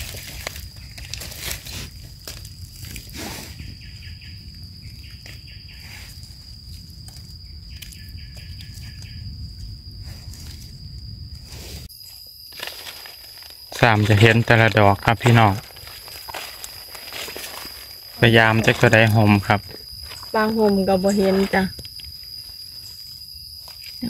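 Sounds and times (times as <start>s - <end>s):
dry leaves rustling: 0.0s - 3.1s, 12.5s - 23.8s
high-pitched insect drone: 0.0s - 24.0s.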